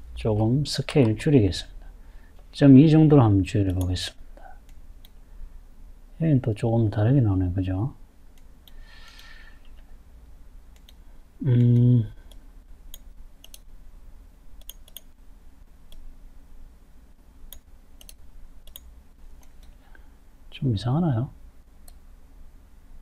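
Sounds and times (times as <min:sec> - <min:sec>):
faint low hum: 0:00.0 - 0:23.0
computer mouse buttons clicking: 0:10.7 - 0:11.0, 0:11.6 - 0:13.7, 0:14.6 - 0:15.1, 0:17.5 - 0:19.8
person vocal sound: 0:11.4 - 0:12.2.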